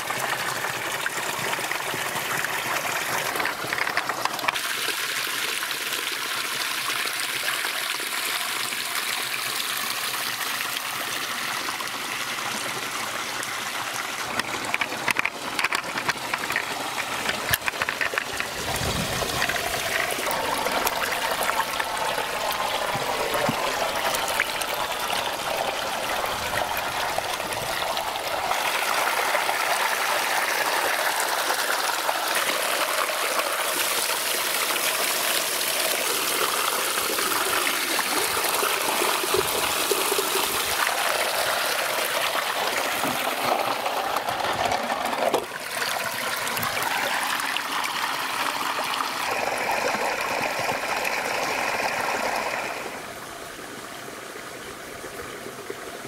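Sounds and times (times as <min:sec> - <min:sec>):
stream water rushing over rocks: 0:00.0 - 0:56.0.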